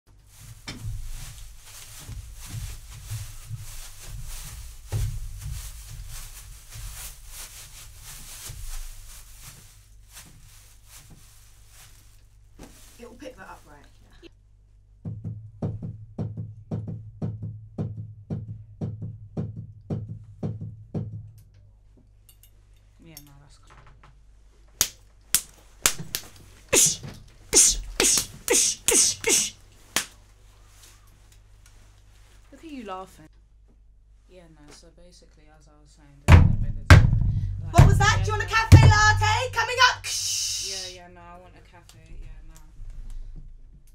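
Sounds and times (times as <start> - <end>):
soft knocks and rustles: 0.1 - 13.9, 42.0 - 43.9
short swishes: 25.9 - 29.6
heavy thump: 36.3 - 39.6
low rumble: 36.7 - 38.3.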